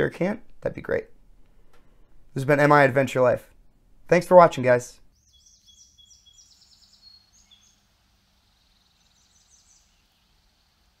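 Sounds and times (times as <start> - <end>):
low background hum: 0.0 - 5.1
bird chirping and trilling: 5.1 - 10.7.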